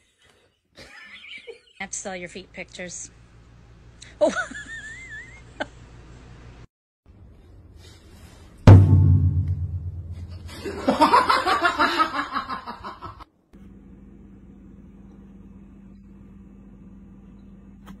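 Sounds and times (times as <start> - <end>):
low boom: 8.7 - 10.9
person laughing hard: 10.5 - 13.2.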